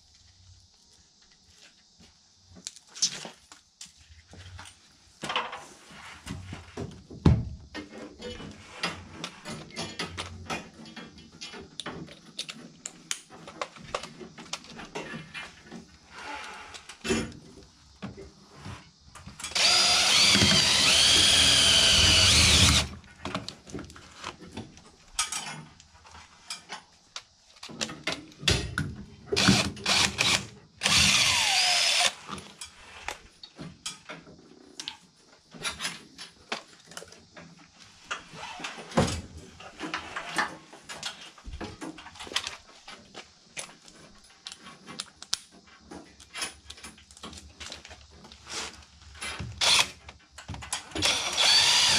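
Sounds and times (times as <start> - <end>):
cordless drill whining: 19.5 - 23.0, 29.4 - 32.2, 49.6 - 50.0, 51.0 - 51.9
clicks and handling noise: 39.6 - 51.6.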